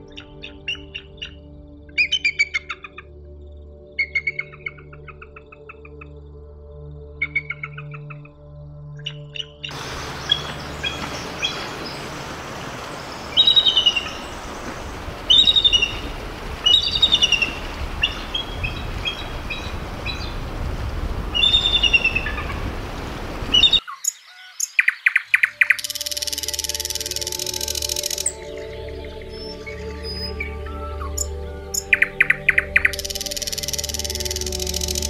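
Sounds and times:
bird's rapid pulsing song: 0.0s - 3.0s, 9.0s - 20.5s, 21.3s - 22.6s, 23.4s - 35.0s
background hiss: 9.7s - 23.8s, 25.7s - 30.4s, 31.2s - 35.0s.

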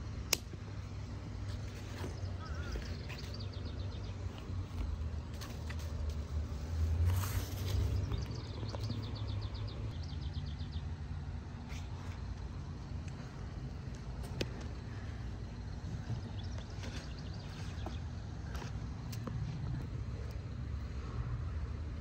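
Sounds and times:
bird ticking trills: 2.0s - 4.6s.

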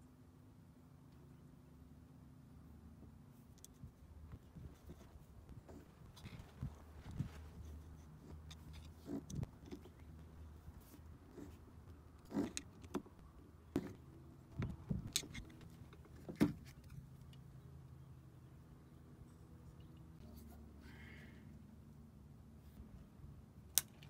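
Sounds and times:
metal part being handled: 14.6s - 17.0s.

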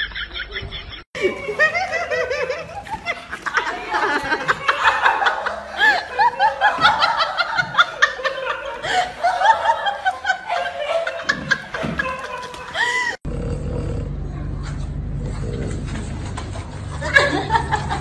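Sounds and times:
person giggling: 0.4s - 13.2s.

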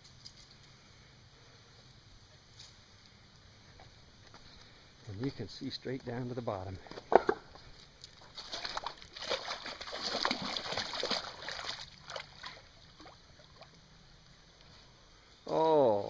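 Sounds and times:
water sloshing and splashing: 8.0s - 13.8s.

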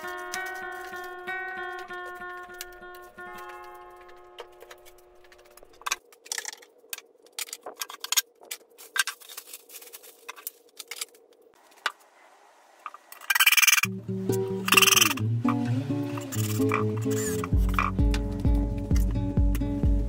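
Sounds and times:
music: 0.0s - 5.8s, 13.9s - 20.0s.

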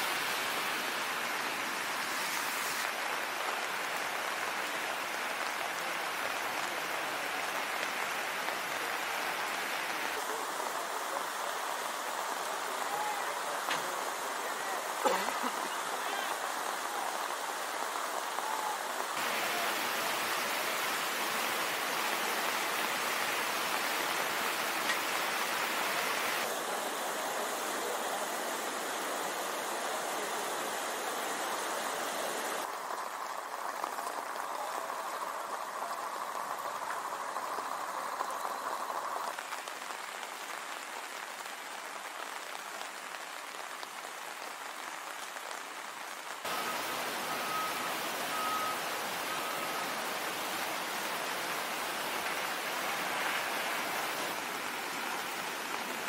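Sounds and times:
floodwater torrent rushing: 0.0s - 56.0s
rain falling: 0.0s - 56.0s.

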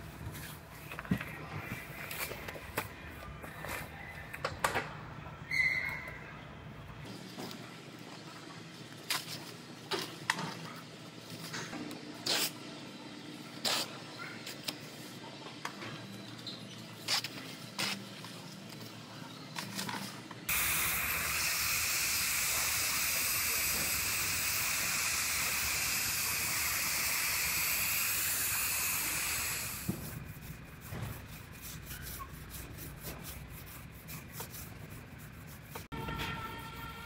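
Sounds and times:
spray gun air hiss: 20.5s - 30.2s
hands rubbing a panel: 29.8s - 35.9s.

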